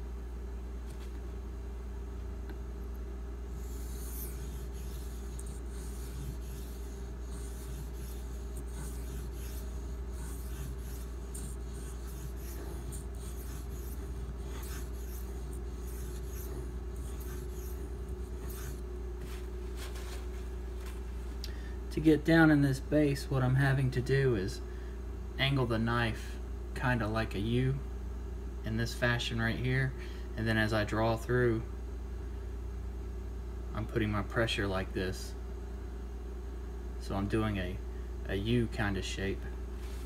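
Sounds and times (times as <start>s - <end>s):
steady low hum: 0.0s - 40.0s
knife scraping on sharpening stone: 3.5s - 18.8s.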